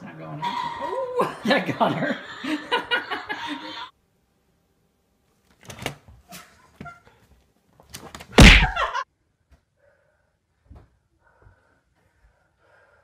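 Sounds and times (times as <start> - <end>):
people laughing: 1.2 - 3.9
heavy thud: 8.4 - 8.8.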